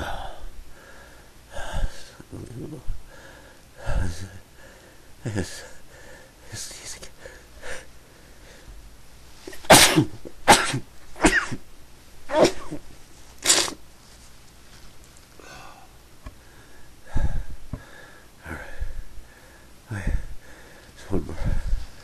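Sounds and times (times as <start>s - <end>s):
person talking: 1.9s - 3.0s, 21.0s - 21.7s
person sneezing: 9.5s - 11.6s, 12.3s - 13.8s.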